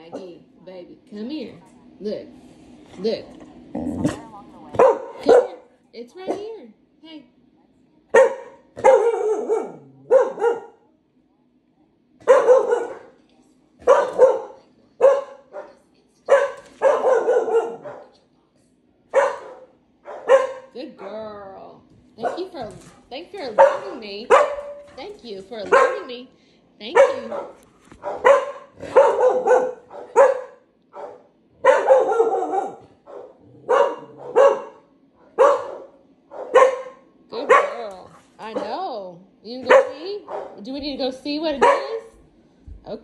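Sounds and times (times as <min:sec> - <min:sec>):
dog barking: 0:04.8 - 0:05.7, 0:08.1 - 0:10.8, 0:12.2 - 0:13.2, 0:13.8 - 0:18.1, 0:19.1 - 0:21.2, 0:22.2 - 0:22.6, 0:23.5 - 0:25.0, 0:25.6 - 0:26.2, 0:26.9 - 0:38.8, 0:39.6 - 0:40.6, 0:41.5 - 0:42.1.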